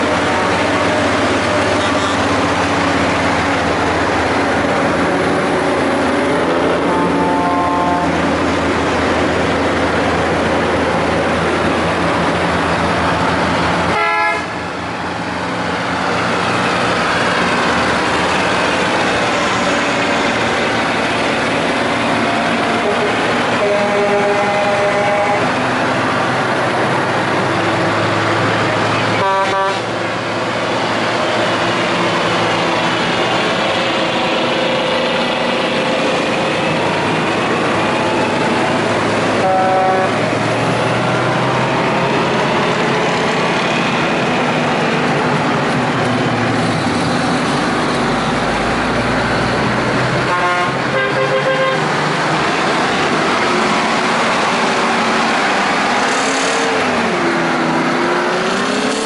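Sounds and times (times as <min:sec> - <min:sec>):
heavy truck engines passing: 0:00.0 - 0:59.0
truck horn blasts: 0:06.8 - 0:08.2, 0:13.9 - 0:14.6, 0:22.7 - 0:25.6, 0:29.0 - 0:30.0, 0:39.3 - 0:40.3, 0:50.2 - 0:51.9.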